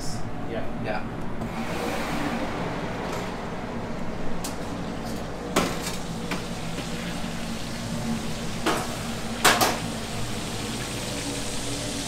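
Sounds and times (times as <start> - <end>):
kitchen background hum: 1.4 - 12.0.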